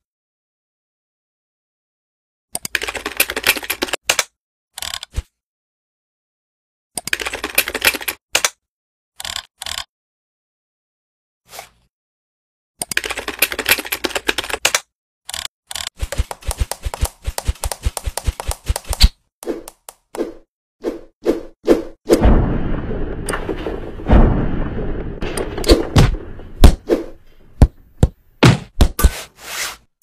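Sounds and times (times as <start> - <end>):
computer keyboard typing: 2.6 - 4.2, 7.0 - 8.5, 12.8 - 20.0.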